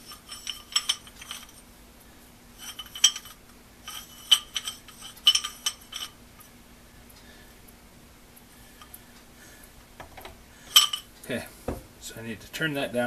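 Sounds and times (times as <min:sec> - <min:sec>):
metal chisel bit clinking: 0:00.0 - 0:01.6, 0:02.6 - 0:06.2, 0:10.8 - 0:11.1.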